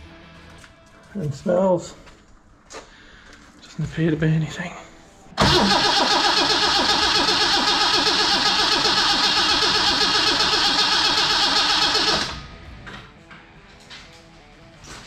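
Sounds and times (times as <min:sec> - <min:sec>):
engine cranking on starter motor: 0:05.4 - 0:12.5.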